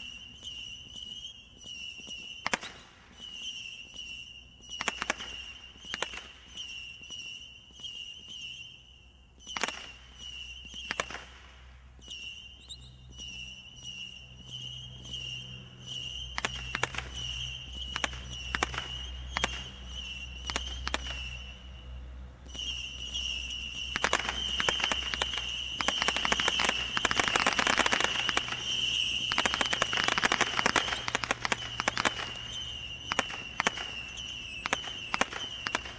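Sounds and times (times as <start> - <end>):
roman candle shots firing: 4.7 - 6.8, 9.5 - 12.4, 15.8 - 21.5, 22.5 - 35.9.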